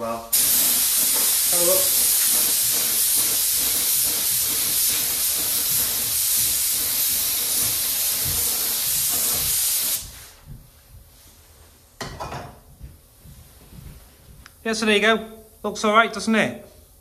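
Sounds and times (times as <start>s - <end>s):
spray gun hissing: 0.3s - 10.4s.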